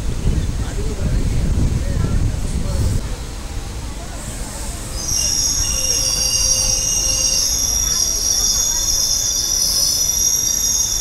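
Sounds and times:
train coach rumbling: 0.0 - 11.0
train wheels squealing: 4.3 - 11.0.

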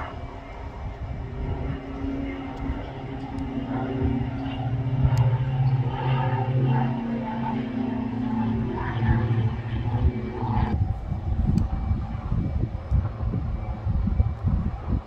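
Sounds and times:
engine humming: 0.0 - 15.0.

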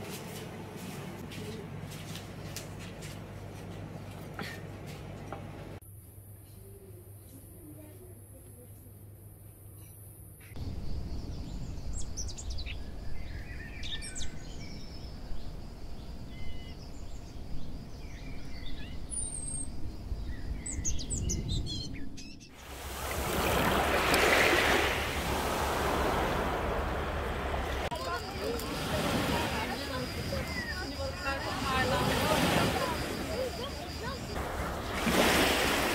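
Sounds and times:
small birds chirping: 9.7 - 22.6, 26.2 - 34.4
waves washing over pebbles: 22.6 - 35.9
low steady rumble: 25.0 - 27.9.

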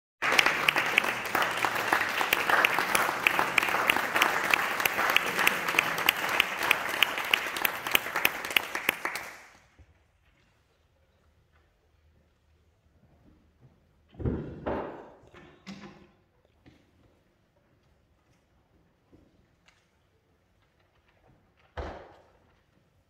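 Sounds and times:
audience applauding: 0.2 - 9.6.

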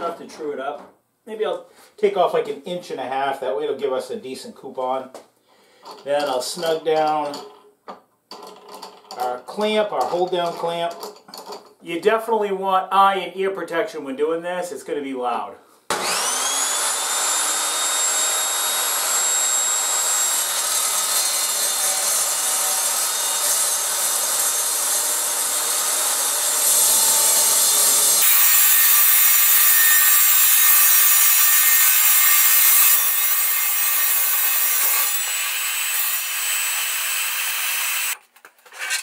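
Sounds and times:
table saw whine: 15.9 - 38.2
saw blade cutting metal sheet: 15.9 - 39.0.

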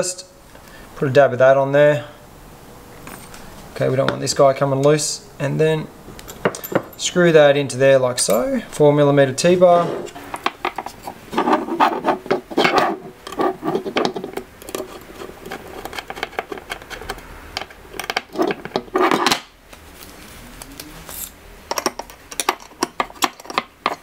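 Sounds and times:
metallic clicks and scrapes: 9.8 - 19.4, 20.8 - 24.0.

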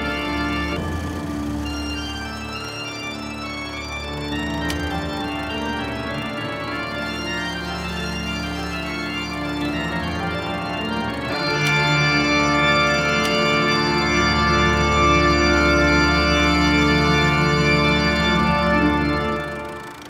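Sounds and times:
deep organ bass note: 0.0 - 19.8
organ chords: 0.0 - 20.0.

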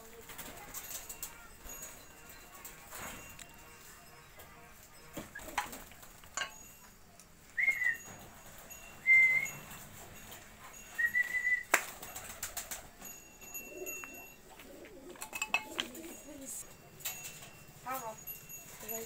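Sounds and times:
person whistling short notes: 7.6 - 8.1, 9.0 - 9.6, 10.9 - 11.8.

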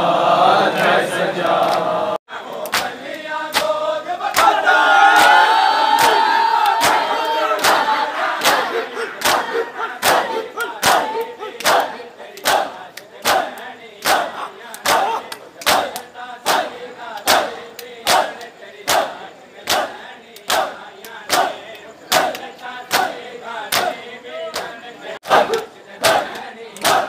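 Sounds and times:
men crying out: 8.7 - 11.6.

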